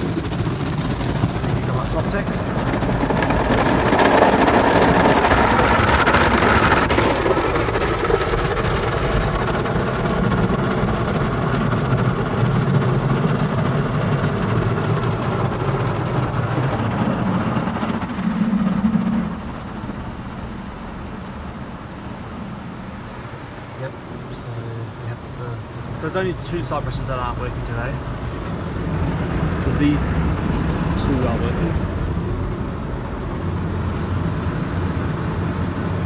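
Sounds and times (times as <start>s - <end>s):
car wash brushes scrubbing: 0.0s - 21.2s
water spraying on car: 0.0s - 36.0s.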